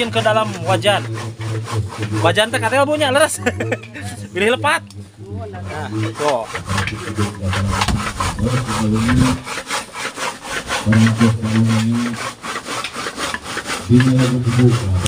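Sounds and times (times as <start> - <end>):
knife chopping on wooden board: 6.2 - 9.5.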